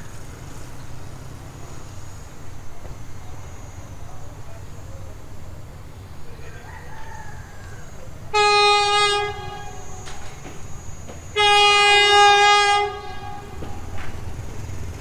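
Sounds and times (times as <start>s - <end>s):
locomotive air horn blasts: 8.3s - 14.4s.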